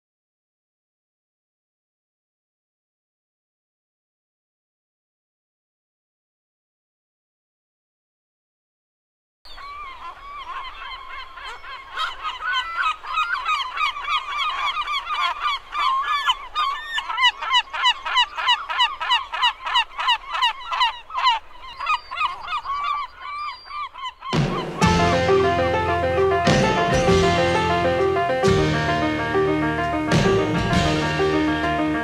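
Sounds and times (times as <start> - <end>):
music: 24.4 - 32.0.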